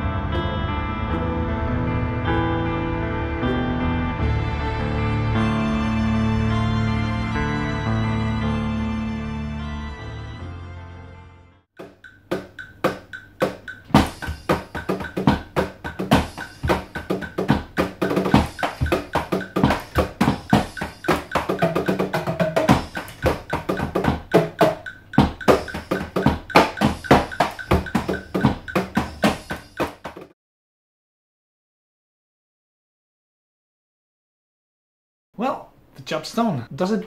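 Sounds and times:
electronic drum groove: 0:11.8 - 0:30.3.

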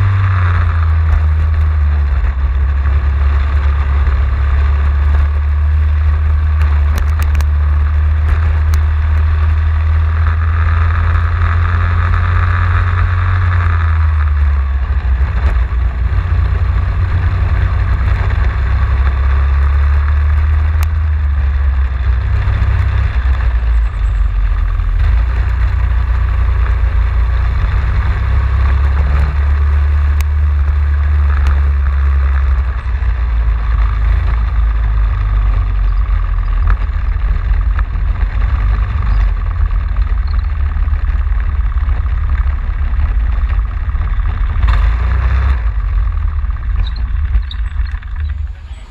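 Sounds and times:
kart engine revving: 0:00.0 - 0:48.9.

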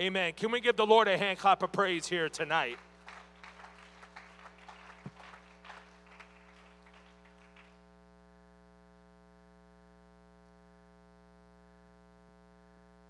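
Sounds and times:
faint hand clapping: 0:02.7 - 0:07.8.

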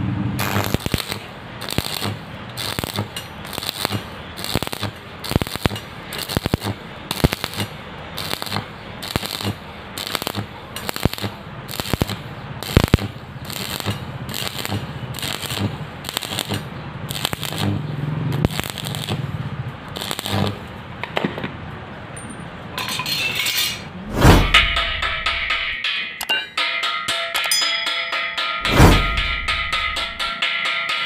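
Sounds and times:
welding arc crackling: 0:00.4 - 0:21.0.

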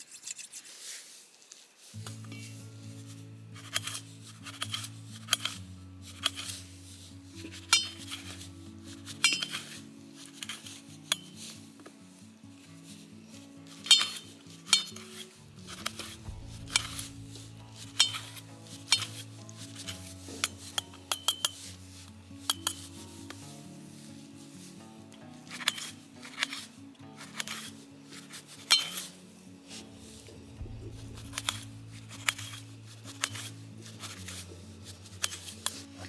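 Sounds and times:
soft background music: 0:01.8 - 0:36.0
knife clicking on steel plate: 0:09.2 - 0:09.6, 0:13.9 - 0:15.0, 0:28.7 - 0:29.0.

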